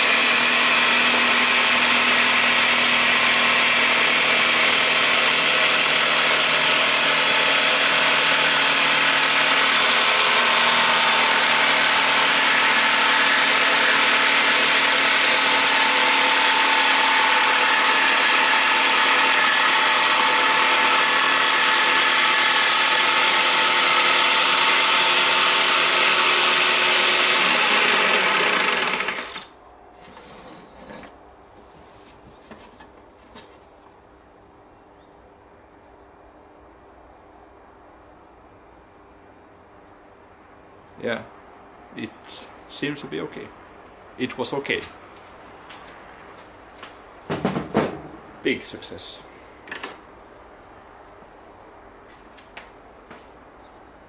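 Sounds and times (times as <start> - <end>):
jigsaw cutting plastic: 0.0 - 29.5.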